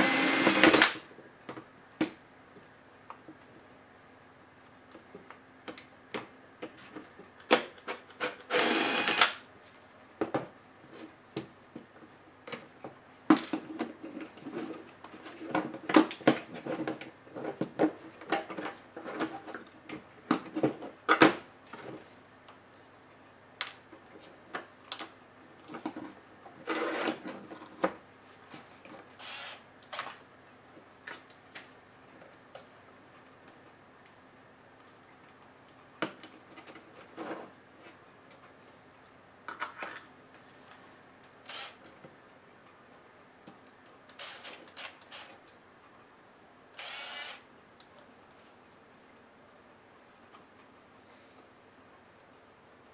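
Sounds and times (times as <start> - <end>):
electric screwdriver running: 0.0 - 1.0, 8.2 - 9.4, 29.2 - 29.6, 41.5 - 41.8, 44.2 - 45.3, 46.8 - 47.4.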